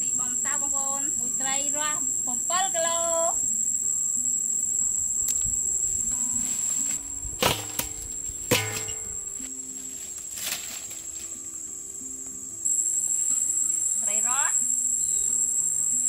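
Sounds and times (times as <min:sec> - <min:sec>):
high-pitched insect drone: 0:00.0 - 0:16.0
soft background music: 0:00.0 - 0:16.0
sharp knocks: 0:07.4 - 0:09.3.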